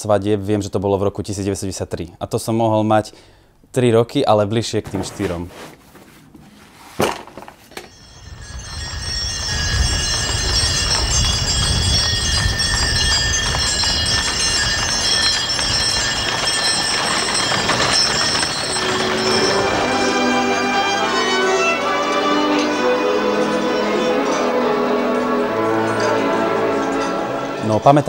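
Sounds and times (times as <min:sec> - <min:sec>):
high jingling: 0:07.8 - 0:28.0
hooves clip-clopping on pavement: 0:08.0 - 0:22.1.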